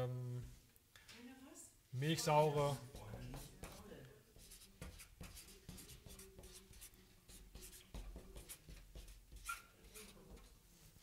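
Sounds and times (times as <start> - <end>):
pen scratching handwriting: 2.9 - 10.5.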